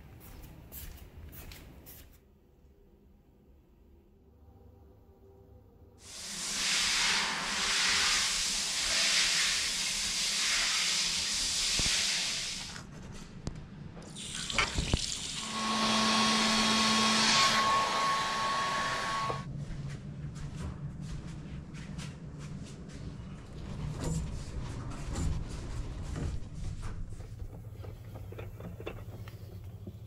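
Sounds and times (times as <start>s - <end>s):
shower water spray: 6.0s - 12.8s
tap running into sink: 14.2s - 15.2s.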